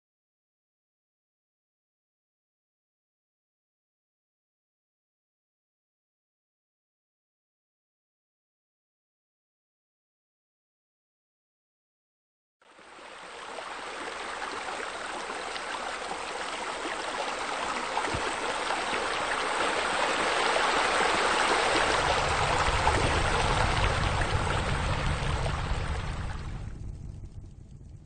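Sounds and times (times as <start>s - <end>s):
water splashing from fountain: 12.7s - 27.4s
low rumble: 21.0s - 28.0s.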